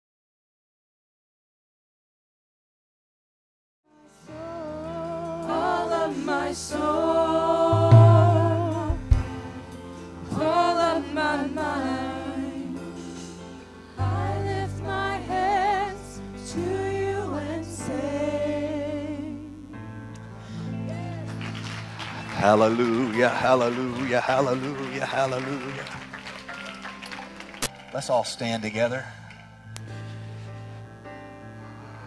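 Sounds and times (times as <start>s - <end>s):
group singing gospel song: 4.2s - 19.6s, 20.8s - 26.0s
band with drums bass and keyboard: 7.7s - 10.7s.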